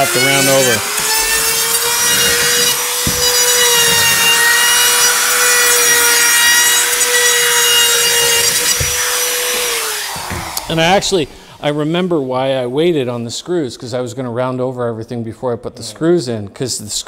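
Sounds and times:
router cutting wood: 0:00.0 - 0:12.7.

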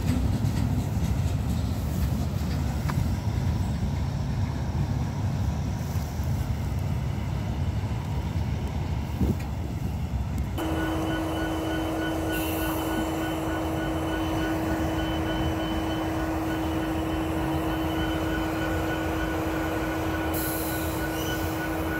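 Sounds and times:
diesel locomotives rumbling: 0:00.0 - 0:21.9
steady tone: 0:10.6 - 0:21.9.

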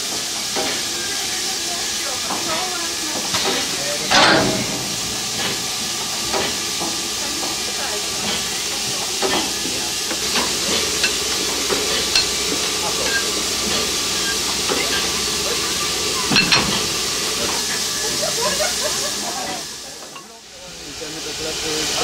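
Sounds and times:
steam hissing: 0:00.0 - 0:22.0
metallic clinks and knocks: 0:11.0 - 0:11.2, 0:12.2 - 0:12.4.

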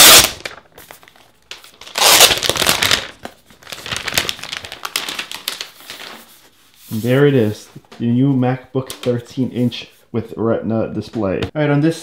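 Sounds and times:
plastic wrap tearing: 0:00.0 - 0:06.3
plastic wrap crinkling: 0:00.0 - 0:07.0.

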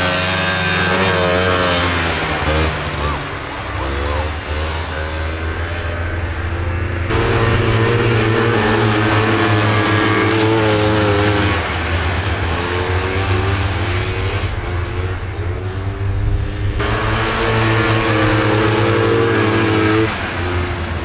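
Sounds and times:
snowmobile engines passing: 0:00.0 - 0:21.0.

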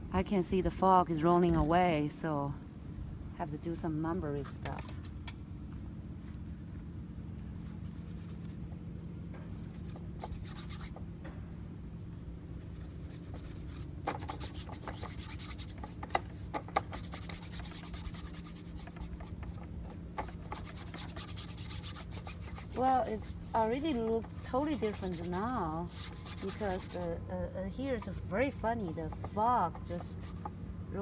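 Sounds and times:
steady low hum: 0:00.0 - 0:31.0
paintbrush scrubbing on panel: 0:07.7 - 0:08.6, 0:09.5 - 0:11.0, 0:12.6 - 0:27.2, 0:28.9 - 0:30.5.

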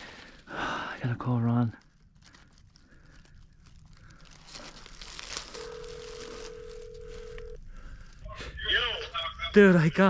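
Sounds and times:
clothing rustling and phone handling: 0:04.3 - 0:07.6
phone ringback tone: 0:05.6 - 0:07.6.

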